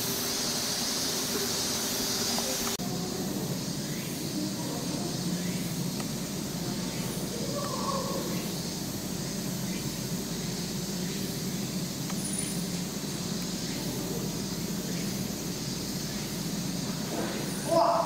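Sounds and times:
background hum and hiss: 0.0s - 18.0s.

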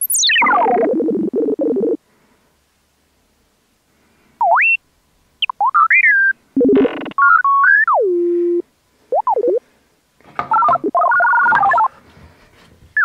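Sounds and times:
electronic sliding whistles and beeps: 0.0s - 0.8s.

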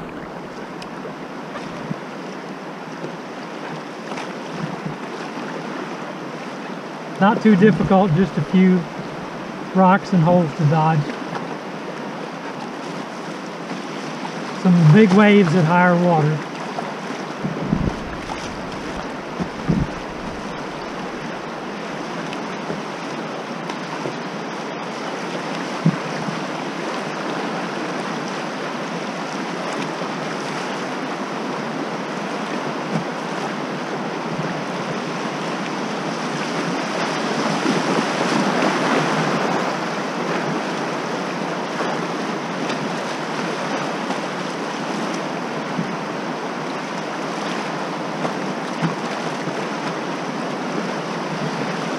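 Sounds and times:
whitewater rushing and splashing: 0.0s - 51.9s
dull knocks: 17.4s - 21.3s.

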